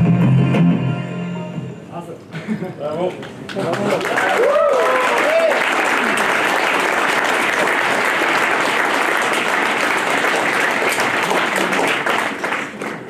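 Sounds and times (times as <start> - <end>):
audience applauding: 3.2 - 13.0.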